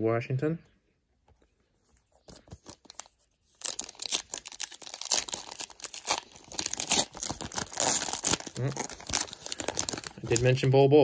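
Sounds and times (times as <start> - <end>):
wrapper crinkling and tearing: 2.2 - 10.8.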